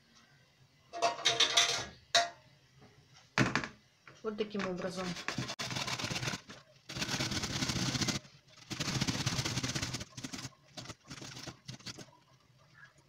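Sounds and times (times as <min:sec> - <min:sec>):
onion rasping on grater: 0:05.0 - 0:12.1.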